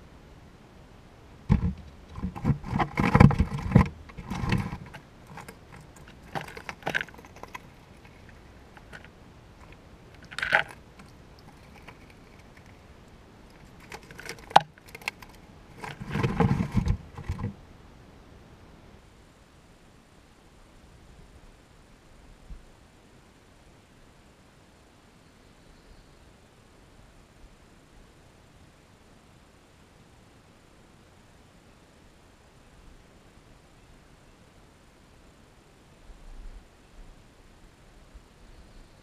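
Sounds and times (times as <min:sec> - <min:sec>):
squirrel rattling peanut shells: 0:02.2 - 0:12.9, 0:13.5 - 0:16.5.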